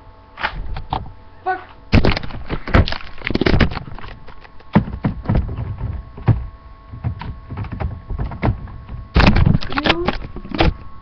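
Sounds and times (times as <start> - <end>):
objects knocking and thudding: 1.9 - 10.8.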